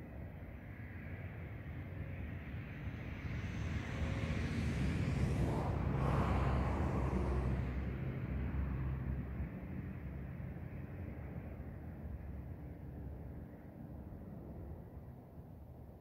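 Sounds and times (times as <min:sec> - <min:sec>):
vehicle driving past: 0:04.4 - 0:09.4.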